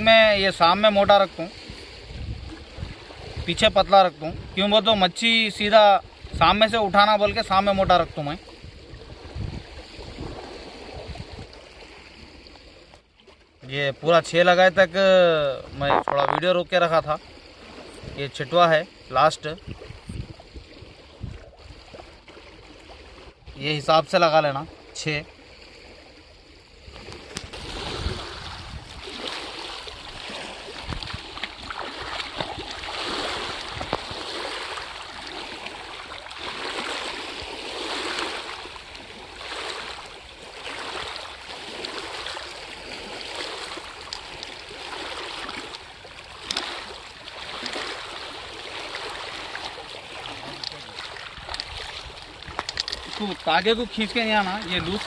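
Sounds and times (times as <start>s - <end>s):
water sloshing around wading person: 0.0s - 55.0s
wind rumble on microphone: 1.5s - 4.8s, 6.0s - 11.8s, 17.4s - 18.4s, 19.4s - 22.3s, 25.6s - 35.6s.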